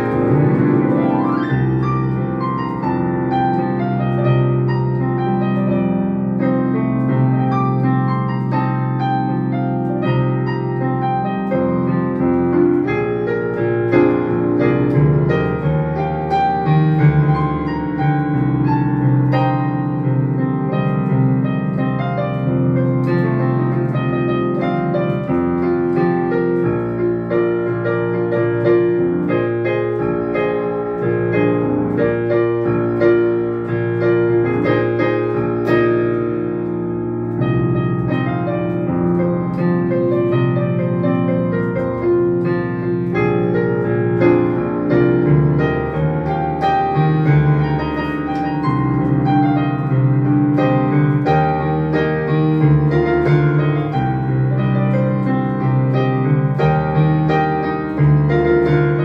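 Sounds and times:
digital piano playing: 0.0 - 59.0.

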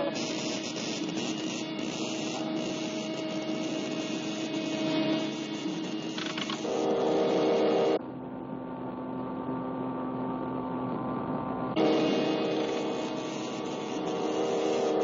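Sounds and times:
electric hum and crackle: 0.0 - 8.0, 8.6 - 15.0
loud buzzing tone: 0.0 - 8.0, 11.8 - 15.0.

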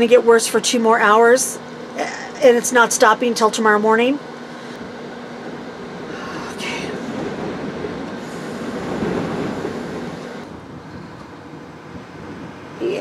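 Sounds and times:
strong wind gusts: 4.2 - 13.0.

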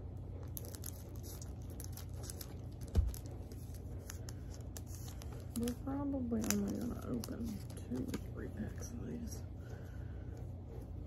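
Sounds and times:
low steady hum: 0.0 - 11.0
cards clicking and rustling: 0.5 - 8.3.

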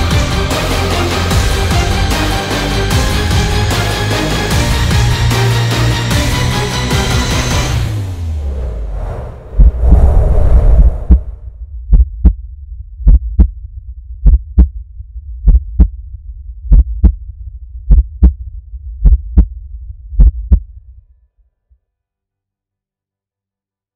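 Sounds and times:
low hum: 8.1 - 21.1
heartbeat double thumps: 9.4 - 20.7.

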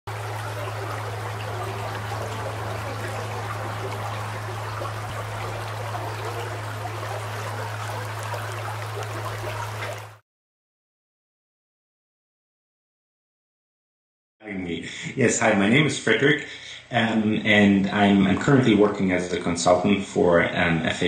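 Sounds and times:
steady low hum: 0.1 - 10.2
stream running over rocks: 0.1 - 10.2.

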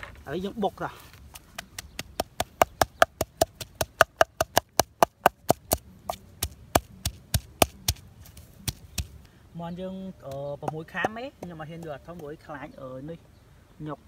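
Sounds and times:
pestle pounding in a mortar: 1.6 - 9.2.

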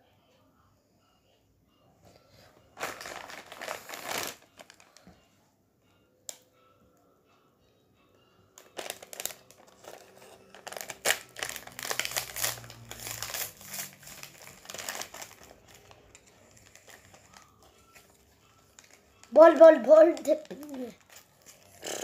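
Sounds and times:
plastic wrapper tearing and crinkling: 2.8 - 5.0, 8.6 - 21.9.

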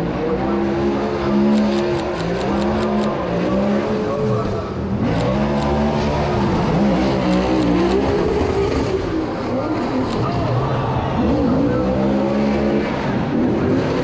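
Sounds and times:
car engines revving: 0.0 - 14.0
camera shutter clicks: 1.6 - 3.2, 7.3 - 8.0.

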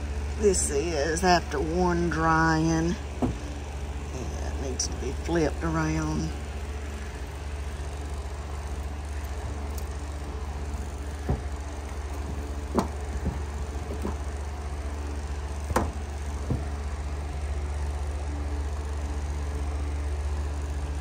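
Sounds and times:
low machine hum: 0.0 - 21.0
knocks against dryer drum: 11.2 - 11.6, 12.2 - 14.3, 15.7 - 16.8.

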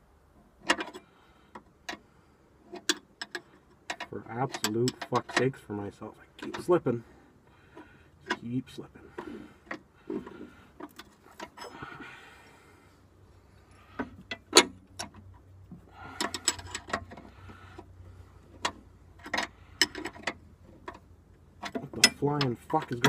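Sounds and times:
wrenches clinking on metal: 2.7 - 5.7, 8.2 - 12.0, 16.0 - 17.9, 18.6 - 21.0, 21.6 - 23.0.

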